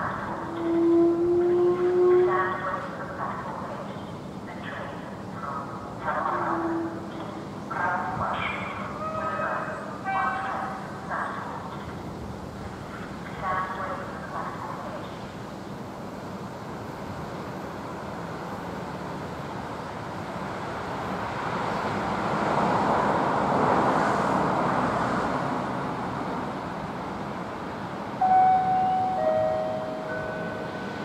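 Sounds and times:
loud steady tones: 28.2 - 31.0.

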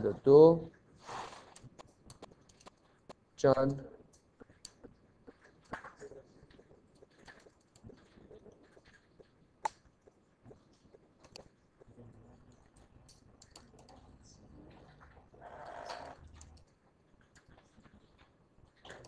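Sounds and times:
computer keyboard clicks: 12.6 - 14.0.

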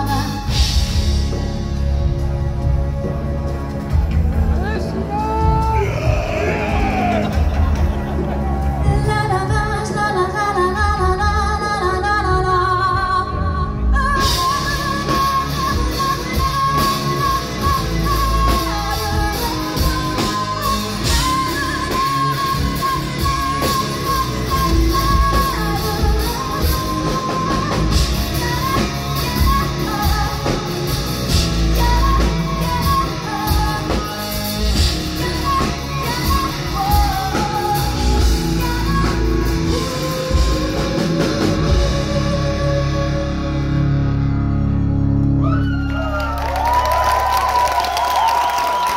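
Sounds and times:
woman singing: 0.0 - 1.1, 8.8 - 43.8
live metal band playing: 0.0 - 48.9.

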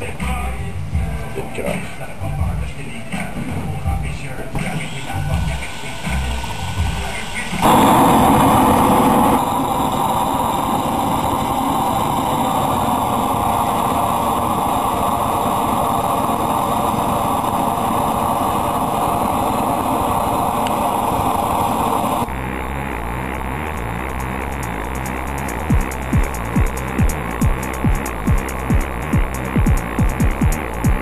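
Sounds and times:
burner flame jet rushing: 4.5 - 31.0.

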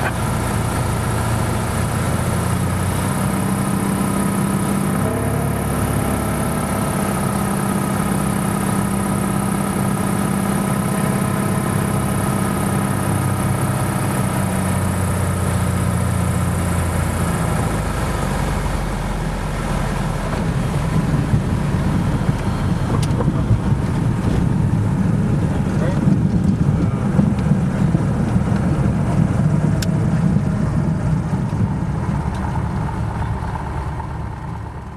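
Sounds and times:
propeller plane engine droning: 0.0 - 34.9
bumps and rattles on runway: 20.2 - 34.9.

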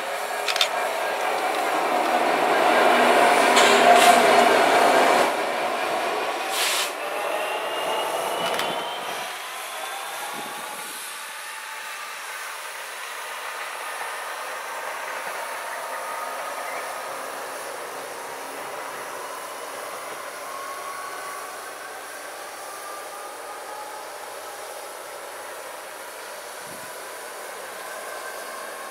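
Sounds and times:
diesel locomotive engine: 0.0 - 28.9.

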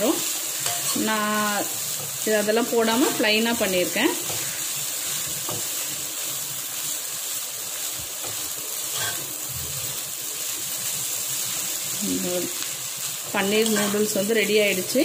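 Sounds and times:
noodles sizzling in a pan: 0.0 - 15.0
spatula stirring: 13.0 - 14.9.

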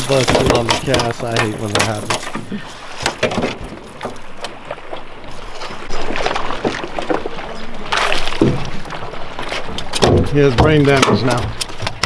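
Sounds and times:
fish thrashing and splashing water: 0.0 - 12.0.

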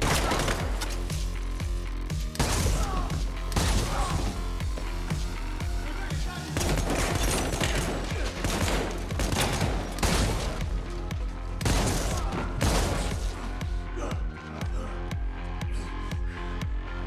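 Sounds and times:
electronic film score with low beat: 0.0 - 17.0
shotgun blasts: 6.6 - 10.6.

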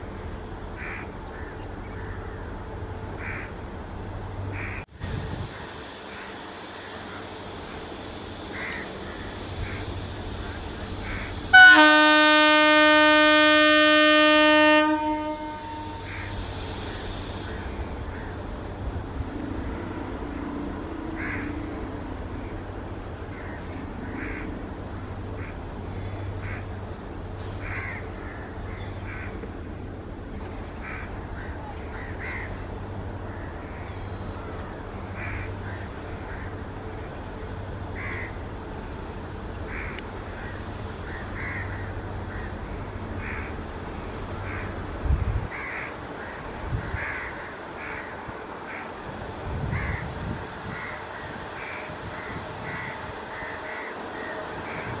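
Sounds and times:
crows cawing: 0.8 - 2.2, 3.2 - 3.5, 8.5 - 9.8, 21.2 - 21.6, 27.6 - 29.4, 30.8 - 32.6, 38.0 - 38.4, 39.7 - 42.6, 43.2 - 43.6, 45.5 - 49.0, 49.7 - 50.1, 50.7 - 55.0.

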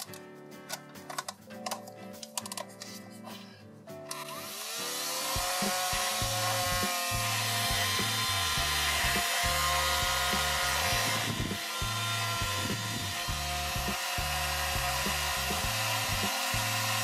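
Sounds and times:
background music: 0.0 - 17.0
small fan motor whirring: 4.1 - 17.0.

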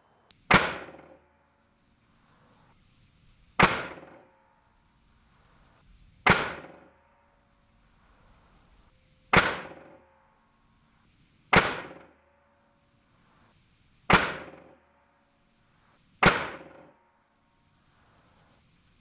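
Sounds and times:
air rifle shots: 0.0 - 1.2, 3.6 - 4.2, 6.2 - 6.9, 9.3 - 10.0, 11.5 - 12.1, 14.1 - 14.8, 16.2 - 16.9.

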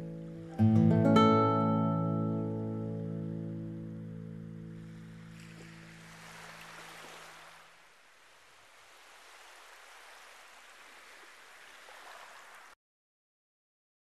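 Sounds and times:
guitar music: 0.0 - 5.3
faint outdoor hiss: 0.0 - 12.8.

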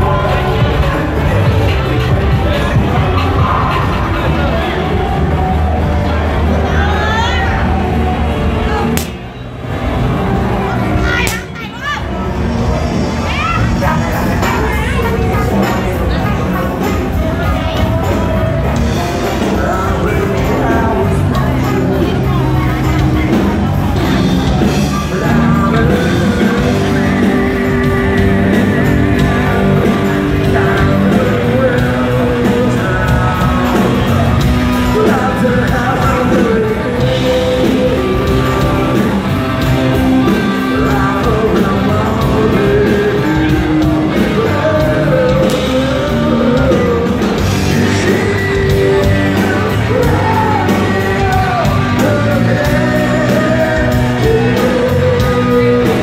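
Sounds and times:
loud amplified rock band: 0.0 - 56.0
person singing into microphone: 13.1 - 56.0.

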